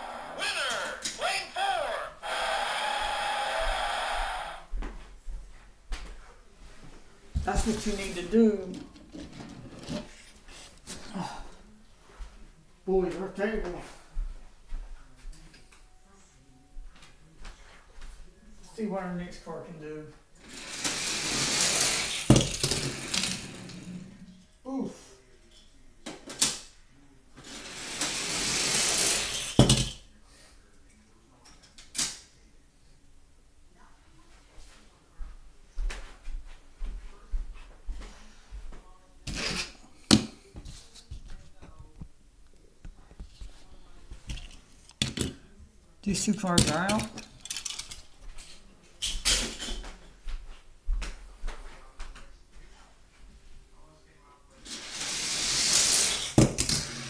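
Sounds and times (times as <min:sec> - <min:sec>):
toy car rolling on plastic track: 0:20.4 - 0:24.0, 0:27.4 - 0:29.9, 0:46.6 - 0:48.1, 0:54.6 - 0:57.0
toy car landing on table: 0:21.7 - 0:23.5, 0:29.2 - 0:30.0.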